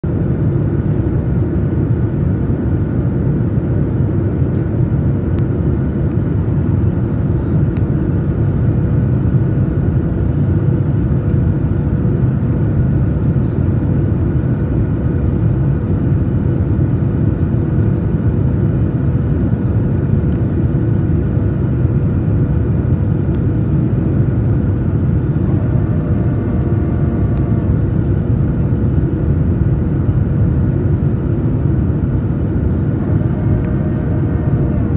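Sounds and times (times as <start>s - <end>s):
jet engine and airflow drone: 0.0s - 34.9s
thin steady hum: 5.4s - 34.9s
faint high whine: 12.5s - 19.9s, 21.5s - 34.9s.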